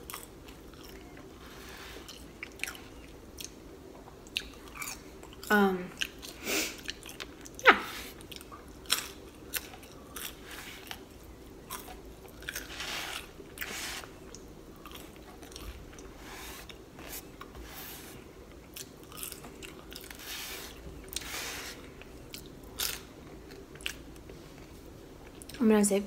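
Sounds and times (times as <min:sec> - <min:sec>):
crunching of crispy fries: 0:08.2 - 0:16.1, 0:18.6 - 0:20.4, 0:22.0 - 0:24.1.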